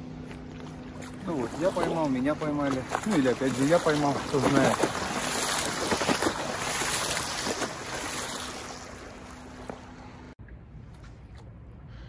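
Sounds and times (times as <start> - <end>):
waves splashing against concrete wall: 1.0 - 10.0.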